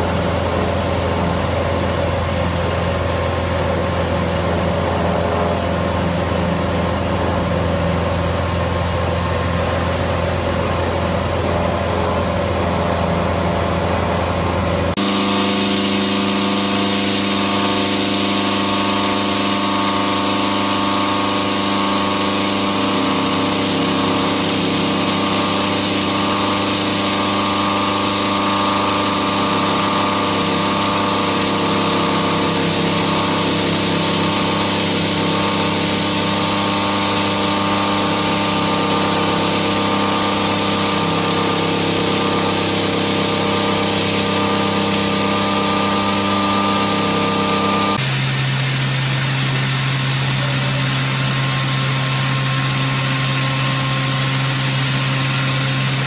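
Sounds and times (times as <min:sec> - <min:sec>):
milling cutter whining: 0:10.5 - 0:48.1.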